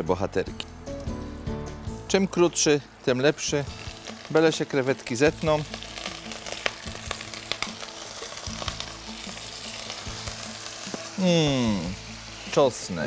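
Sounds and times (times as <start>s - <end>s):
prawns sizzling in butter: 2.6s - 13.0s
popping fat: 3.7s - 12.6s.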